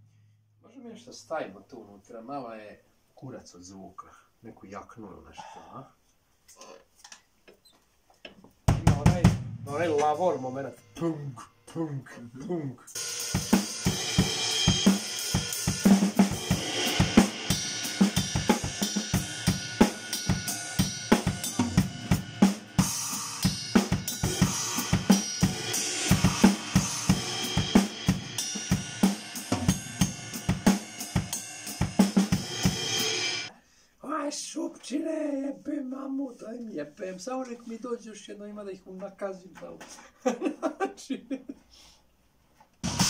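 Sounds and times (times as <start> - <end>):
acoustic drum kit groove: 7.9 - 11.6, 12.9 - 33.5, 42.6 - 43.0
cymbal crashes: 13.0 - 33.5.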